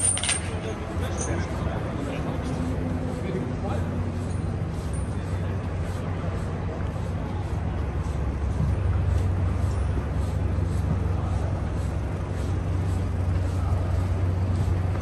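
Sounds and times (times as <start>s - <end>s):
traffic engines rumbling: 0.0s - 15.0s.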